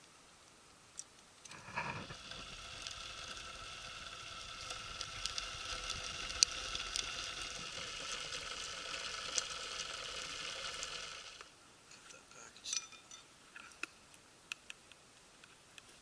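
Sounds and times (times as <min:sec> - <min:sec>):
fire crackling and popping: 0:00.0 - 0:11.6, 0:13.8 - 0:16.0
twig fire rushing draught: 0:01.5 - 0:11.5.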